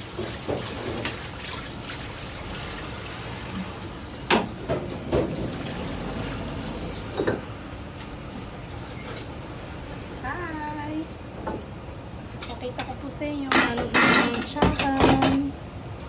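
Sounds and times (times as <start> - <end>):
water sloshing in a wok: 0.0 - 10.2
wok clanking on burner: 12.5 - 15.5.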